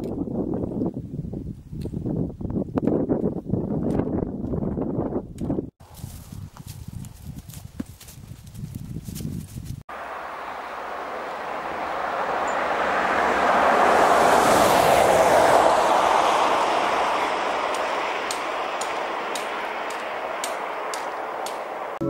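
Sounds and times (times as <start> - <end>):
vehicle passing by: 9.9 - 22.0.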